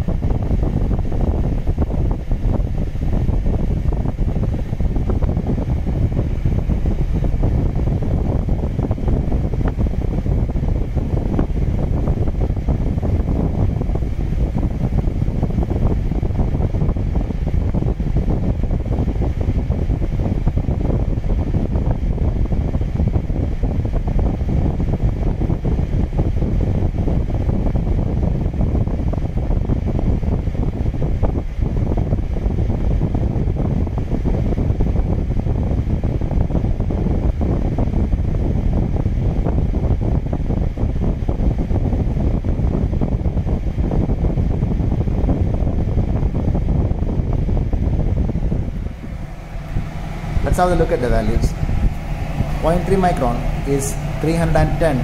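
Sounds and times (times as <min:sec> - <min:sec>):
air filter fan rushing air: 0:00.0 - 0:55.0.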